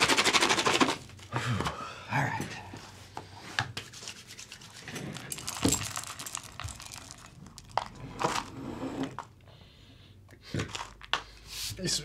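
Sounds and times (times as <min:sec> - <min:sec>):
cereal bag crinkling: 0:05.4 - 0:08.0.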